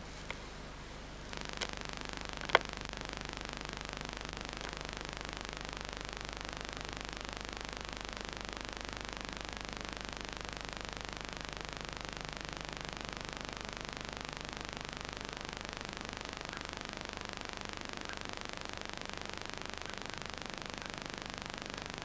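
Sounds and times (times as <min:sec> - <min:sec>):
tape hiss: 0:00.0 - 0:22.0
sharp clicks: 0:01.3 - 0:02.8.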